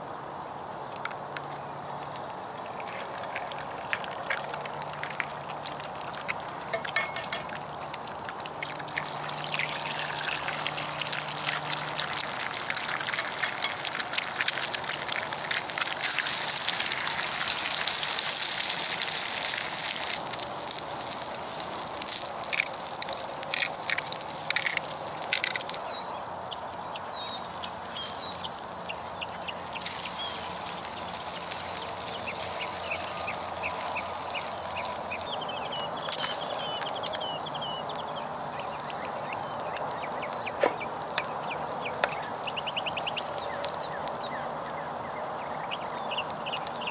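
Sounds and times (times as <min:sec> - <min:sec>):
food sizzling in a skillet: 0:03.0 - 0:25.9, 0:27.2 - 0:44.8
sharp pops: 0:39.8 - 0:42.6.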